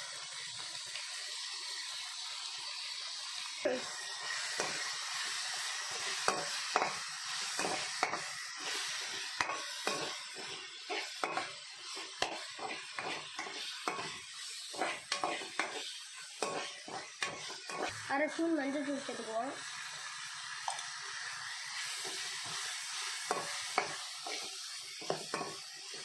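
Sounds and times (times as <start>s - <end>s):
vegetables sizzling in hot oil: 0.0s - 26.0s
metal spoon scraping a pan: 3.9s - 19.2s, 21.7s - 26.0s.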